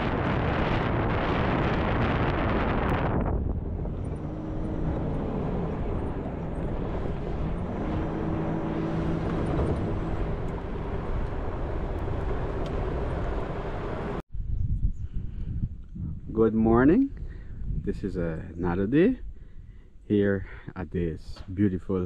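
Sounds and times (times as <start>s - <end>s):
wind rush: 0.0s - 19.8s
vehicle engine running: 3.4s - 14.2s.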